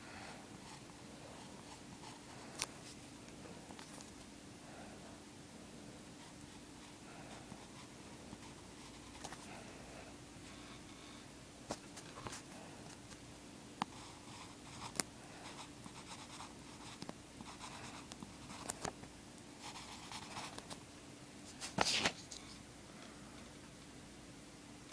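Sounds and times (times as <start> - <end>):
faint steady hum: 0.0 - 24.9
pencil scratching on paper: 19.6 - 20.6.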